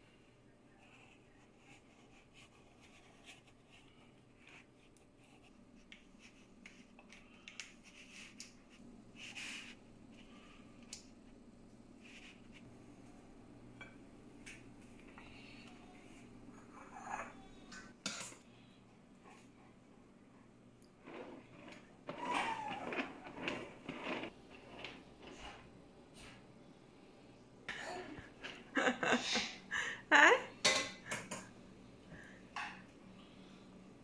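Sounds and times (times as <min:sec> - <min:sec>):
low steady hum: 0:00.0 - 0:34.0
knife scraping metal cake pan: 0:21.1 - 0:25.6.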